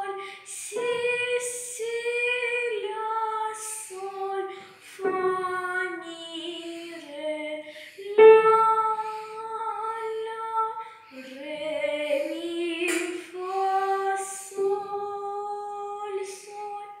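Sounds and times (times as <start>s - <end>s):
girl singing held notes: 0.0s - 17.0s
upright piano: 7.6s - 9.9s.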